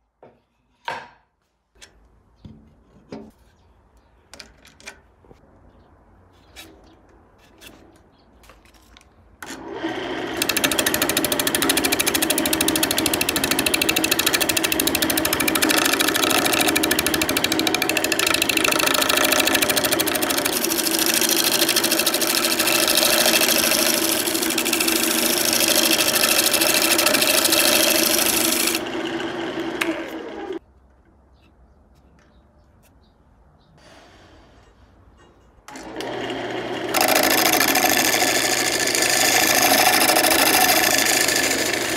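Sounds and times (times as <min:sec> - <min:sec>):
lathe tool scraping wood: 0:09.4 - 0:30.6, 0:35.7 - 0:41.9.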